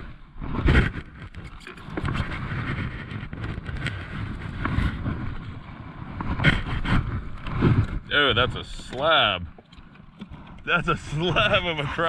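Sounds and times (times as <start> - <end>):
wind rumbling on microphone: 0.0 - 12.0.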